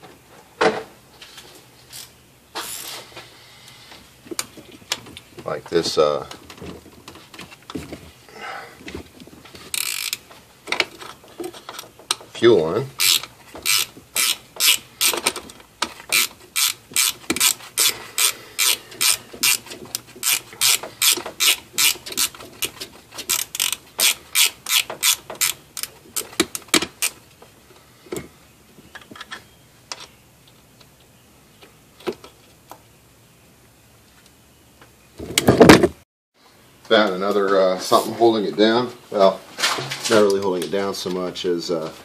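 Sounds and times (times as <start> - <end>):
ratcheting wrench clicking: 9.7 - 10.2, 13.0 - 15.5, 16.1 - 27.2.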